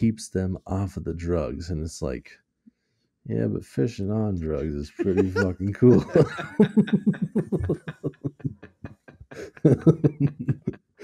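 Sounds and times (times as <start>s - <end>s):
person laughing: 4.6s - 10.8s.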